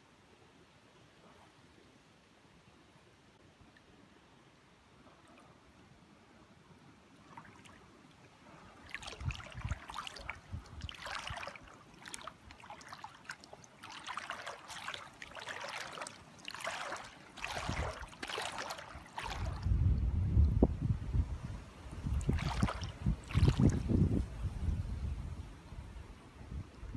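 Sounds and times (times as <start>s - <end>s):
paddle splashing and dripping: 7.1s - 19.8s, 22.0s - 24.0s.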